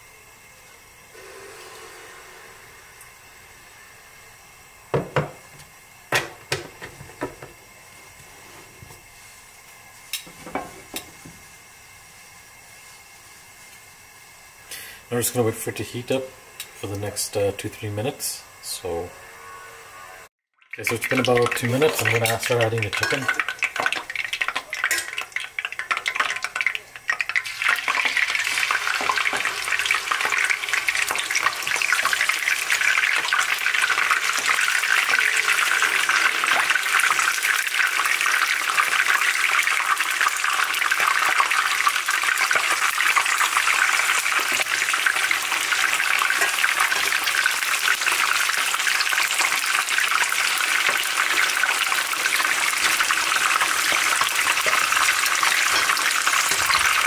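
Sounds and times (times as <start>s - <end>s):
chicken sizzling in hot oil: 0.0s - 7.8s, 20.6s - 57.0s.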